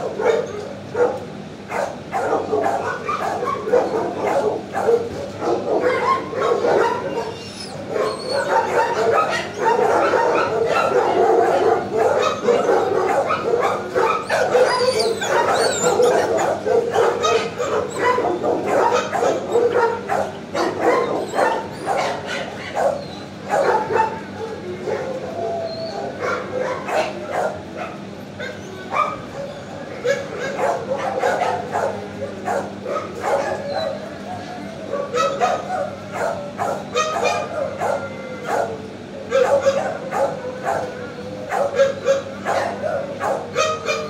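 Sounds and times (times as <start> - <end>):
many dogs barking: 0.0 - 44.0.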